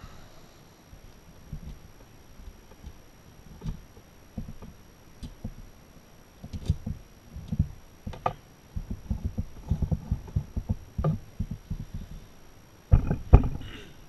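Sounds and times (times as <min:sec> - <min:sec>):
dull knocks of tools and parts: 0:12.9 - 0:13.7.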